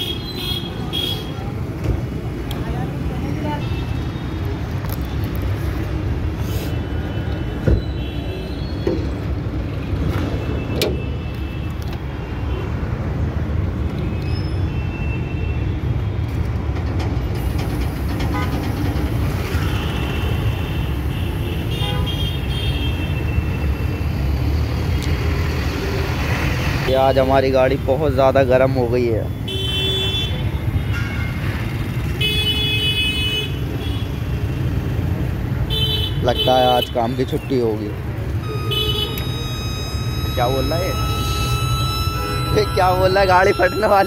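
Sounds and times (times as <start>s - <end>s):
road traffic rumble: 0.0s - 44.0s
heavy trucks passing: 16.3s - 22.0s, 37.6s - 44.0s.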